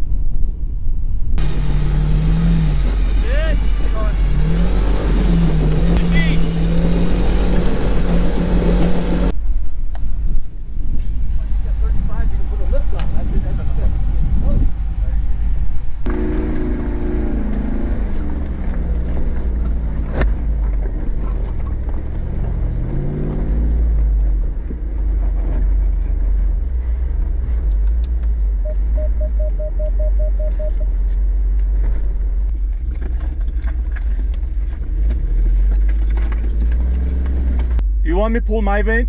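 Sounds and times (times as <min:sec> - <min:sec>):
low rumble: 0:00.0 - 0:39.0
vehicle engine revving: 0:01.4 - 0:09.4, 0:11.1 - 0:38.1
short beeps: 0:28.6 - 0:30.9
knocks and scrapes: 0:30.4 - 0:37.8.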